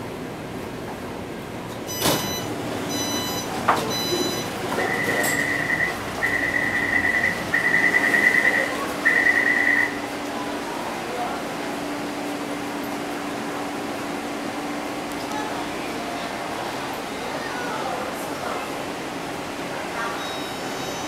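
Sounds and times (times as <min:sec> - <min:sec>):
train doors sliding open: 0:00.8 - 0:10.4
high electronic beep: 0:01.9 - 0:10.0
train chime: 0:01.9 - 0:10.1, 0:20.1 - 0:21.0.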